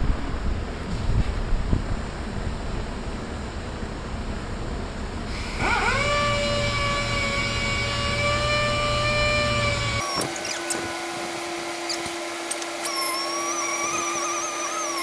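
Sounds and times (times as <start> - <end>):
fan blowing: 0.0 - 15.0
orbital sander whining: 5.4 - 15.0.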